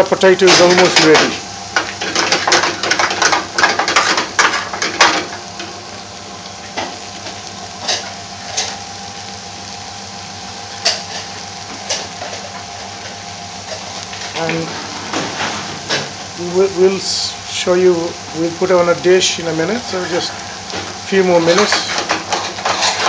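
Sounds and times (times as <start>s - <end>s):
potatoes sizzling in oil: 0.0s - 23.0s
utensil scraping metal frying pan: 7.2s - 8.8s, 10.7s - 16.4s, 19.2s - 23.0s.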